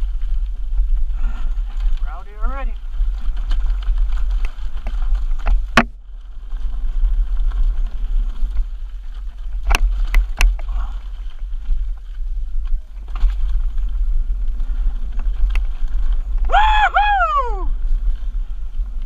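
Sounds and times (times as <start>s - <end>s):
bike and tyres rattling over ground: 0.0s - 19.0s
wind buffeting microphone: 0.0s - 19.0s
bike striking rocks clacks: 2.8s - 16.5s.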